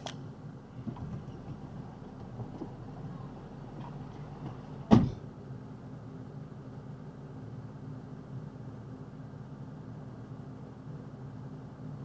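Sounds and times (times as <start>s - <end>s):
truck cab door slamming: 0.8s - 5.3s.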